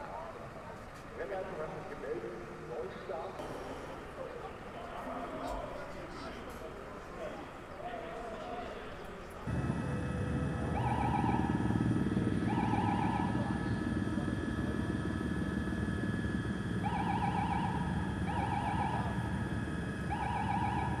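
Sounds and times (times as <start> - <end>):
helicopter rumble: 9.0 - 21.0
warbling electronic tone: 9.5 - 21.0.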